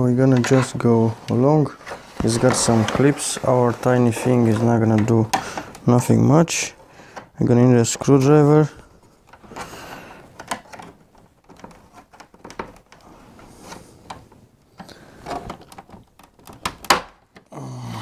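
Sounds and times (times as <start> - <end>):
plastic clicks and scrapes: 9.0 - 17.5.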